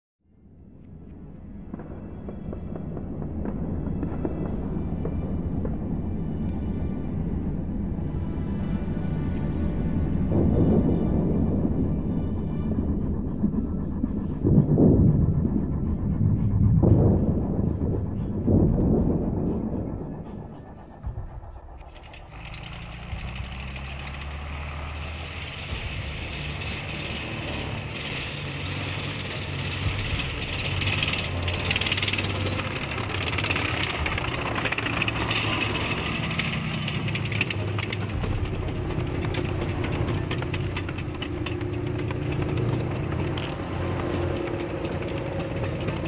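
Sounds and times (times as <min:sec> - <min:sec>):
tank engine rumbling: 0:00.9 - 0:46.0
steel tracks clanking: 0:20.2 - 0:46.0.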